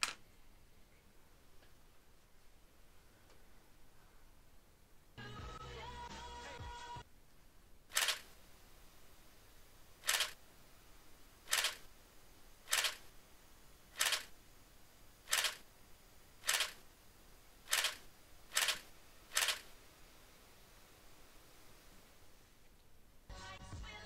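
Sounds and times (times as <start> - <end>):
camera shutter clicks: 7.9 - 8.3, 10.0 - 10.4, 11.5 - 11.9, 12.7 - 13.1, 14.0 - 14.4, 15.3 - 15.6, 16.4 - 16.8, 17.7 - 19.7.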